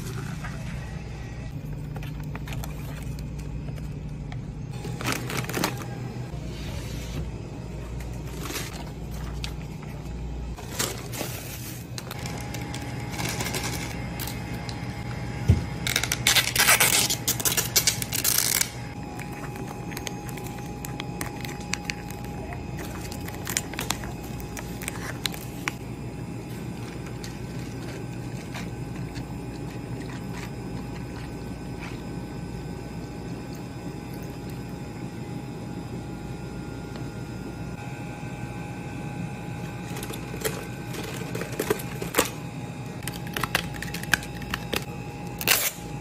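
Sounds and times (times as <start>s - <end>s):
steady low hum: 0.0s - 46.0s
plastic packaging crinkling: 4.8s - 6.1s, 8.0s - 14.8s, 15.8s - 25.8s, 43.0s - 45.8s
plastic crackling: 15.8s - 25.8s, 43.0s - 45.8s.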